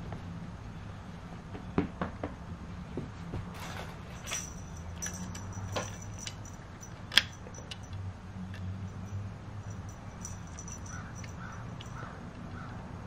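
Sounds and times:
low steady hum: 2.7s - 12.5s
cat toy clicks and rattles: 3.6s - 12.1s.

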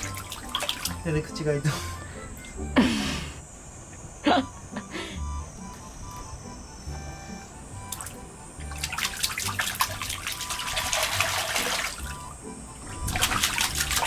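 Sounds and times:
hands splashing water: 0.0s - 1.0s, 7.9s - 12.2s, 13.1s - 14.0s.

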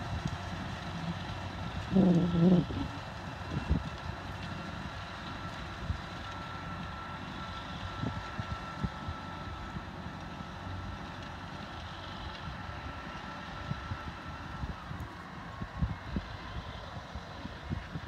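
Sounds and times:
distant tractor diesel engine: 0.0s - 18.0s
wind buffeting microphone: 13.6s - 18.0s.

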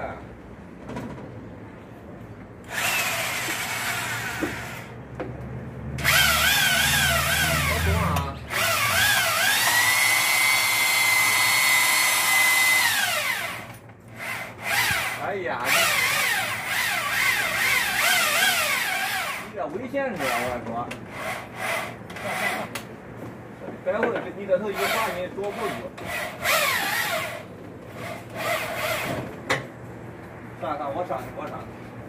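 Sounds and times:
cordless drill whining: 2.7s - 4.9s, 6.0s - 19.5s, 24.7s - 29.2s.

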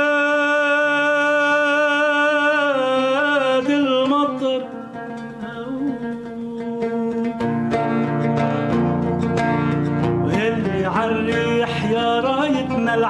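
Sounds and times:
man singing held note: 0.0s - 4.7s
oud playing: 0.0s - 13.0s.

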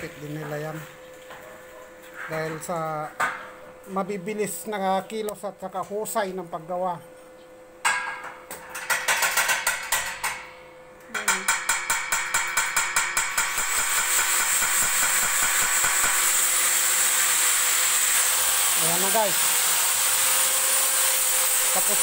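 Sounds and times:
rapid tapping on steel grille: 11.2s - 16.3s.

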